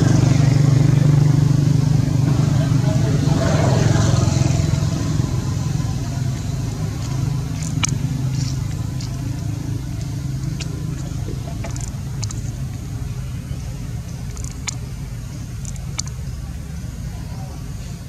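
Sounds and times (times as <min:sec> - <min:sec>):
engine drone: 0:00.0 - 0:18.0
sharp clicks: 0:14.0 - 0:16.3.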